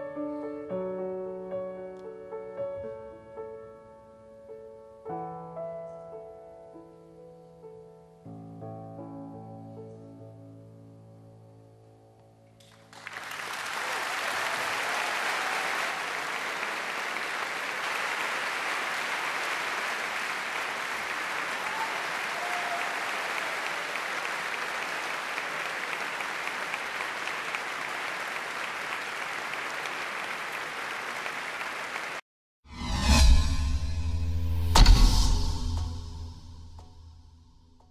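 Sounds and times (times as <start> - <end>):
large audience applauding: 12.6 - 32.2.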